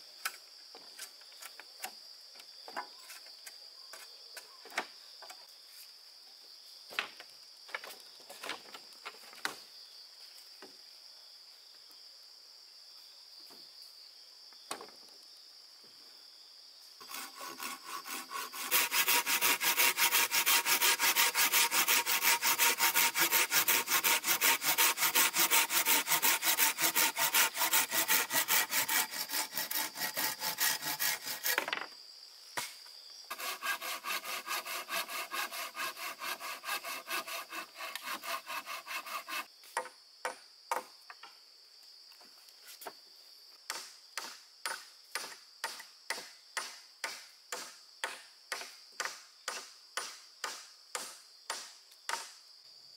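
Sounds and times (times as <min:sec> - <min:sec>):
hand saw cutting wood: 0:17.0 - 0:31.8, 0:33.3 - 0:39.5.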